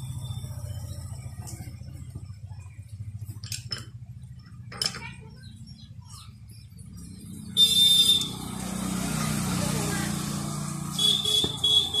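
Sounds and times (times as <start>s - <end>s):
metal tools clinking: 3.4s - 4.0s, 4.6s - 5.2s.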